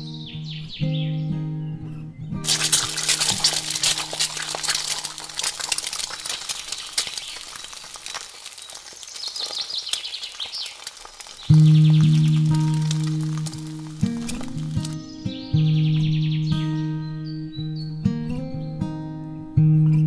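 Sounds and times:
crackling and spattering oil: 2.4 - 15.0
egg sizzling in hot oil: 2.4 - 15.0.

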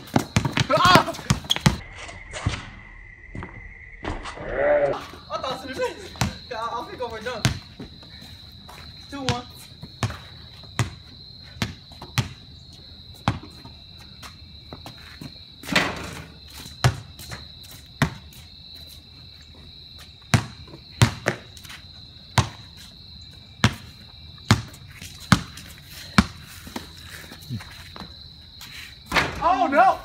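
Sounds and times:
basketball bouncing on concrete: 0.0 - 1.8, 6.2 - 6.5, 7.2 - 8.0, 9.2 - 12.5, 13.2 - 13.8, 16.7 - 17.4, 18.0 - 18.3, 20.3 - 21.5, 22.3 - 22.7, 23.6 - 26.9
insect trill: 0.0 - 30.0.

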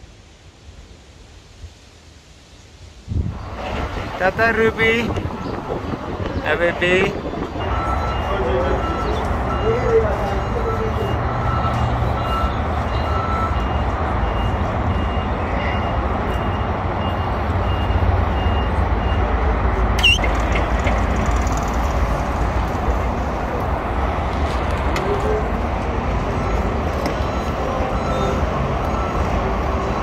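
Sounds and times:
low rumble of vehicles: 0.0 - 30.0
forklift warning beeper: 7.1 - 19.4, 25.1 - 30.0.

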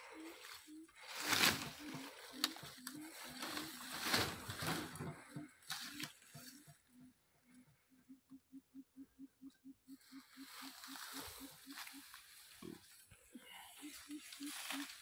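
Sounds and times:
plants rustling and crackling: 0.0 - 6.7, 10.2 - 15.0.

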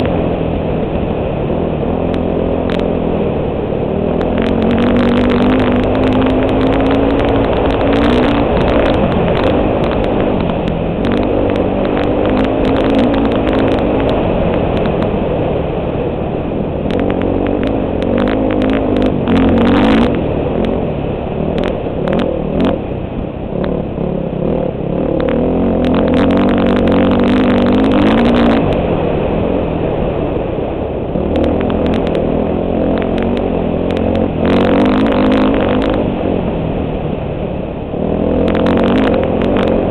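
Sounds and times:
dirt bike engine revving: 1.2 - 15.8, 16.7 - 30.1, 31.1 - 36.5, 37.9 - 39.9
clicks and clatter: 2.1 - 3.0, 4.1 - 15.2, 16.9 - 20.8, 31.3 - 36.1, 38.4 - 39.9.

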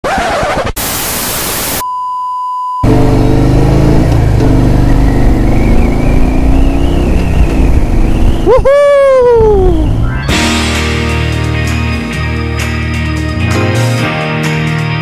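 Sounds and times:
television static hiss: 0.8 - 1.8
motorcycle engine running loud: 2.8 - 8.5.

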